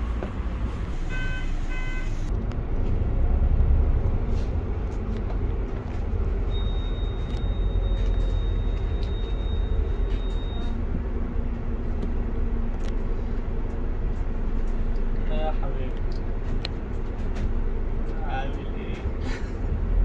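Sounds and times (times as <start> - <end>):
bus engine and road rumble: 0.0 - 20.0
short electronic beeps: 6.5 - 10.8.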